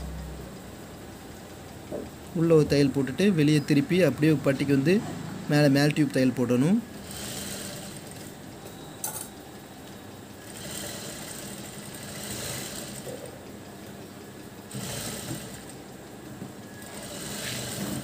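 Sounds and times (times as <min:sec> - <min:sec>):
sewing machine stitching: 0:06.9 - 0:08.3, 0:10.4 - 0:13.4, 0:14.7 - 0:15.8, 0:16.7 - 0:18.0.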